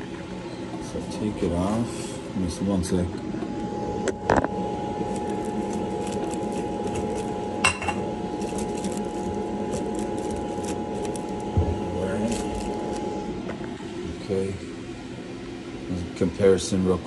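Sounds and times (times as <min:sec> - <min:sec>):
blower motor whining: 0:03.1 - 0:15.6.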